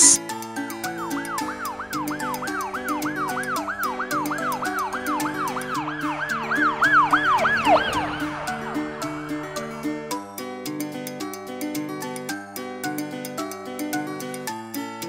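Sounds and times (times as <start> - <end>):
background music with steady beat: 0.0 - 15.0
ambulance siren wailing: 1.0 - 10.2.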